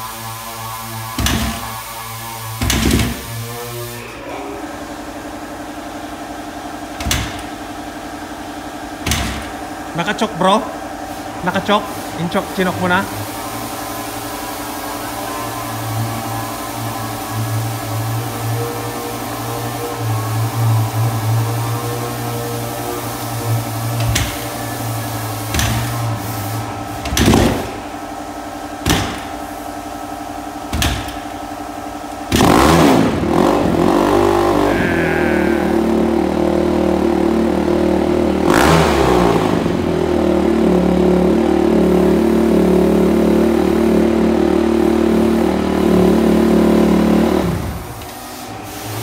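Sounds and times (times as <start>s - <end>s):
dirt bike engine revving: 32.3s - 47.9s.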